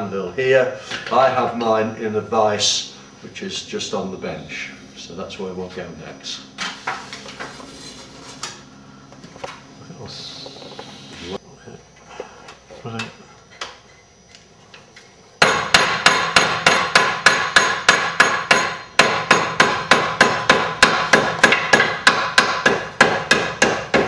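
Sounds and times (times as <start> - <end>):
hammer striking hot iron: 15.4 - 24.0.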